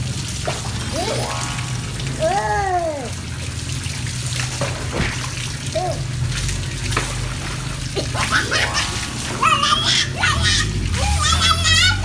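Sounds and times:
running water: 0.0 - 12.0
person exclaiming: 0.9 - 1.3, 2.2 - 3.2, 5.7 - 6.0, 9.4 - 12.0.

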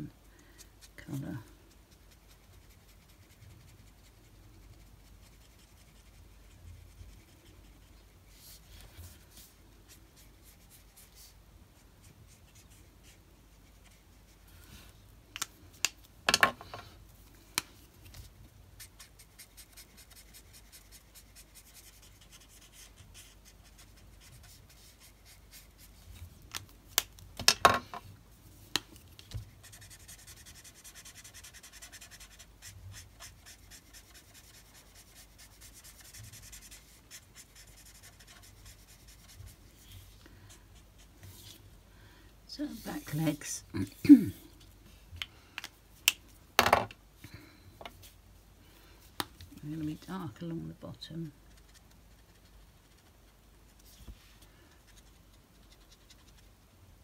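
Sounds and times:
marker nibs scratching on card: 29.4 - 39.6, 54.8 - 56.6.

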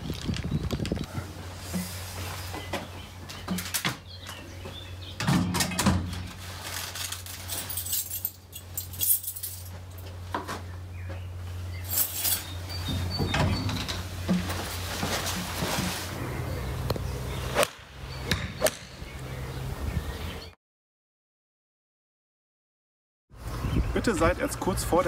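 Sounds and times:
wire buckets clinking: 5.2 - 10.6, 11.8 - 16.2
glove rustling: 14.1 - 16.2.

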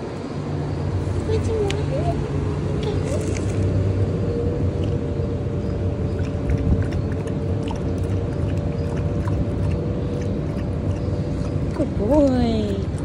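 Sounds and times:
low mechanical rumble and hum: 0.0 - 13.0
dog lapping water: 4.7 - 13.0.

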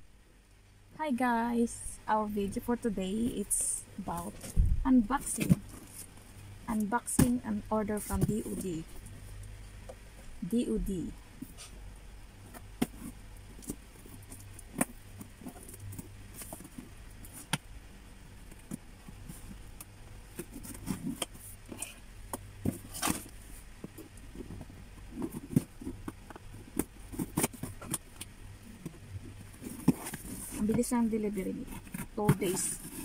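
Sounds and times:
low steady hum: 0.0 - 33.0.

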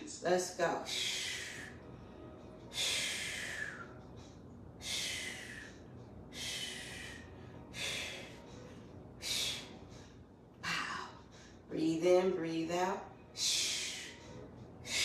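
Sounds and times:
woman breathing hard: 0.9 - 11.6.

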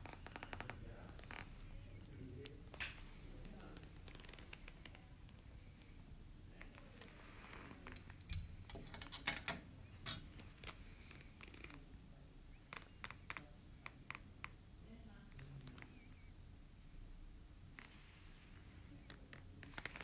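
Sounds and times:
metal dental instruments clicking: 7.9 - 10.4.

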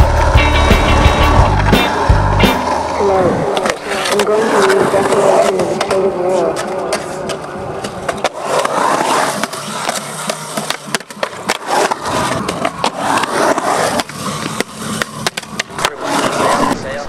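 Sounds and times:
skateboard wheels rolling on concrete: 0.0 - 17.0
skateboard clacking on concrete: 3.5 - 16.8.

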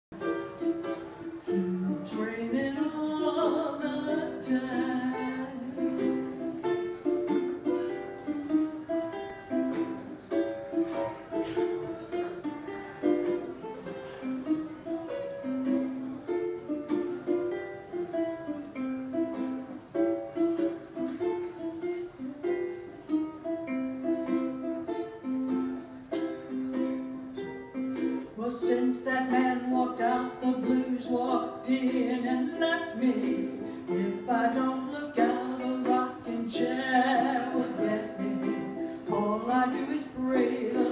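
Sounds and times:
ukulele strumming chords: 0.1 - 40.9
person singing: 0.2 - 9.9, 27.9 - 40.9.

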